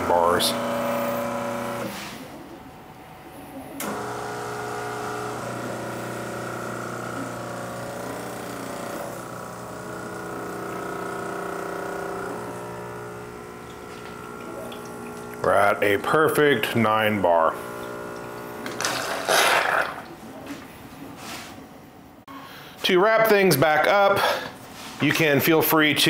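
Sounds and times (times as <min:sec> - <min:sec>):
espresso machine pump humming: 0:00.0 - 0:02.0, 0:03.8 - 0:19.3.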